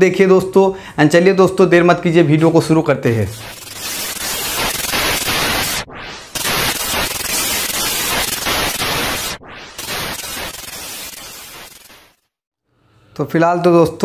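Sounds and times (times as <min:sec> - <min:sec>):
digital static bursts: 0:03.2 - 0:12.3.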